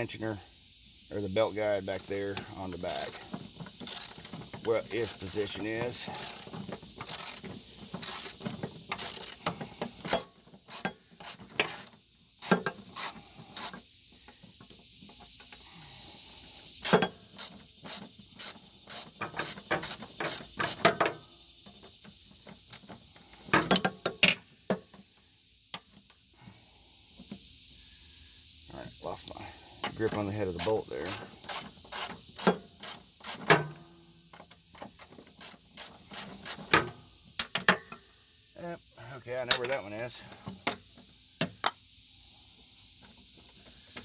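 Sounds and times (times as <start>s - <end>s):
ratchet wrench clicking: 1.7s - 13.8s, 16.8s - 21.1s, 29.9s - 33.6s, 34.9s - 37.0s.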